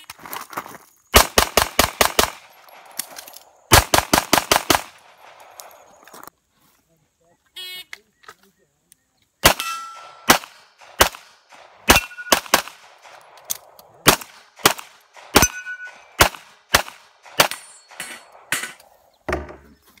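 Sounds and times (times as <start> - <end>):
pistol shots: 1.2 - 5.9, 9.4 - 18.9
metallic ring of steel targets: 9.5 - 10.4, 11.9 - 12.5, 15.2 - 16.2, 17.2 - 18.9.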